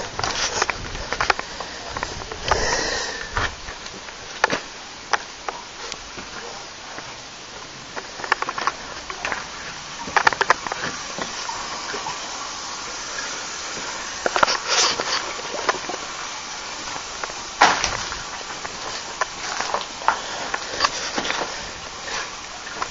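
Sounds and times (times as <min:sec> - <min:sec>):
footsteps crunching over debris: 0:00.0 - 0:07.2, 0:13.4 - 0:22.9
steady hiss: 0:00.0 - 0:22.9.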